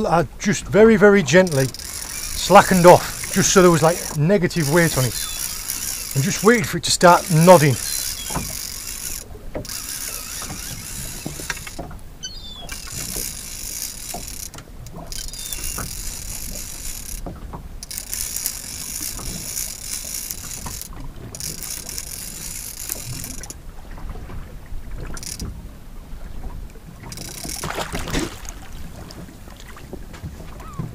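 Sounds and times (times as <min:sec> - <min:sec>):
fishing reel ratchet clicking: 0:01.4 - 0:11.9, 0:12.6 - 0:23.6, 0:25.1 - 0:25.5, 0:27.1 - 0:27.7.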